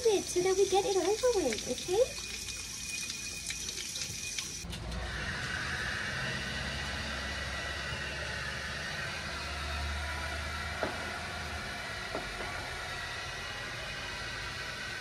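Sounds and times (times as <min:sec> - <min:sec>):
tap water running into sink: 0:00.0 - 0:04.7.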